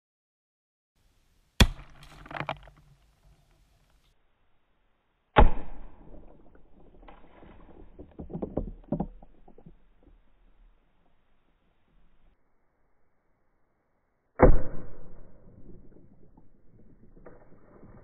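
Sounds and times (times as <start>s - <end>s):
water balloon bursting: 1.6s - 2.6s.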